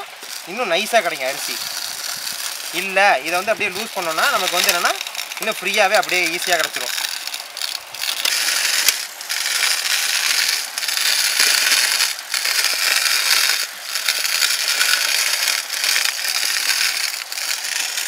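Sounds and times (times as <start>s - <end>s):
flour mill grinding rice: 0.0s - 18.0s.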